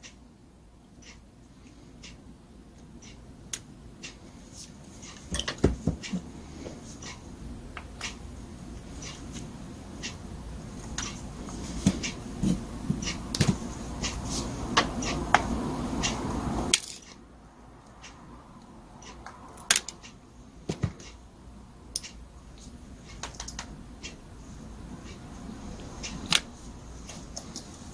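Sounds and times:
small metal parts clicking and clinking: 16.7 - 17.2.

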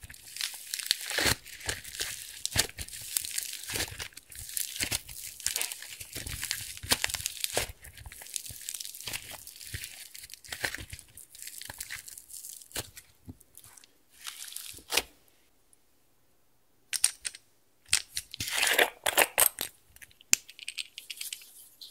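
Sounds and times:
slime squishing with pops: 0.1 - 13.1.

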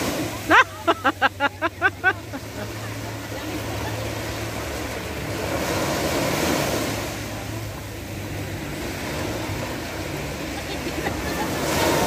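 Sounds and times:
low steady rumble: 0.0 - 12.0
small waves breaking on shore: 0.0 - 12.0.

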